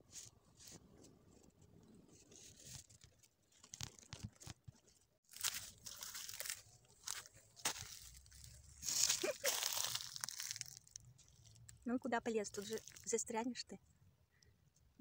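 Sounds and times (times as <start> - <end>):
rustling and crackling of dry leaves: 5.3 - 13.4.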